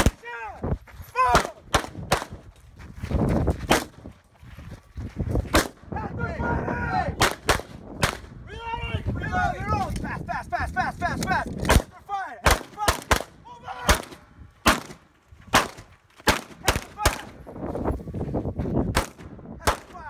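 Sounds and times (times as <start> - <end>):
handgun shots: 11.6 - 17.3.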